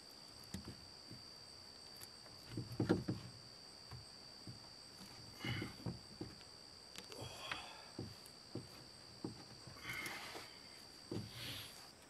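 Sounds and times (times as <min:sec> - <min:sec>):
knocks and scrapes on workbench: 0:02.4 - 0:03.3.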